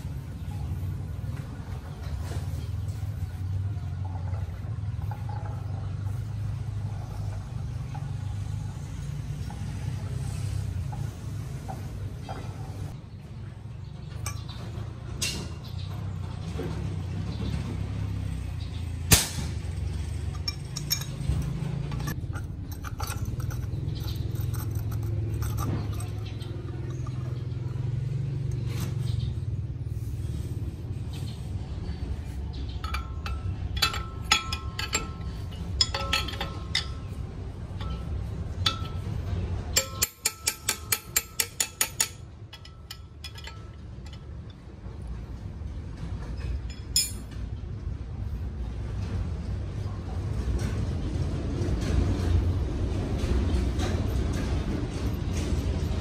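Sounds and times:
steady low hum: 0:00.0 - 0:56.0
metal parts clinking on lathe chuck: 0:20.1 - 0:27.6, 0:32.8 - 0:45.0, 0:46.4 - 0:47.4.

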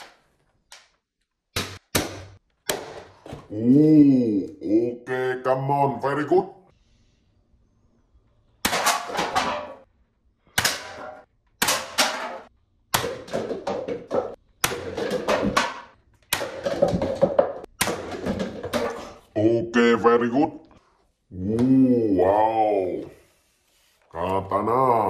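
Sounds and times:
paper cups clattering: 0:13.0 - 0:19.3.

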